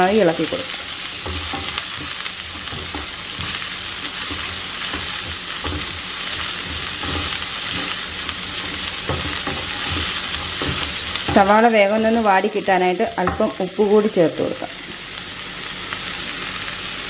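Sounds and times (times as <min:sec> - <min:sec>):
onions sizzling in oil: 0:00.0 - 0:17.0
spatula scraping pan: 0:00.5 - 0:13.6.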